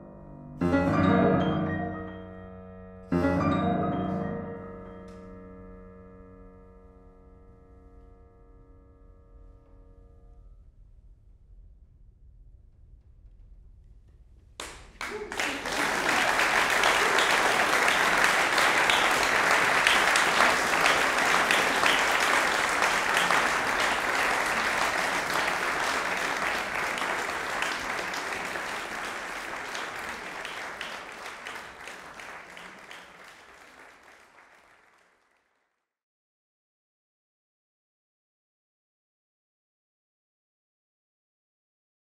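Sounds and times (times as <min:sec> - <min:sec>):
audience applauding: 0:14.6 - 0:35.6.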